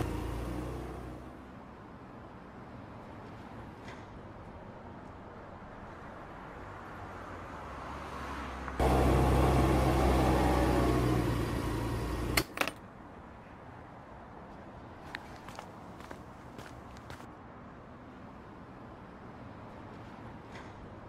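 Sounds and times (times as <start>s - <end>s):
motorbike engine humming: 0.0s - 1.3s, 8.8s - 12.5s.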